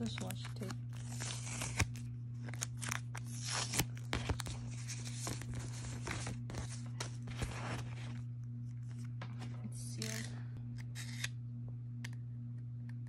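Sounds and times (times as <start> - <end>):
plastic sleeves rustling: 0.0 - 8.2
low hum: 0.0 - 13.0
tape being peeled off plastic: 0.1 - 8.2.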